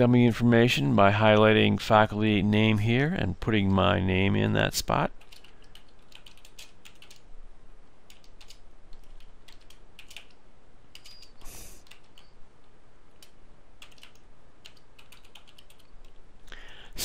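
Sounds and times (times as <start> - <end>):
typing on computer keyboard: 5.2 - 7.2, 8.1 - 12.4, 13.2 - 16.2.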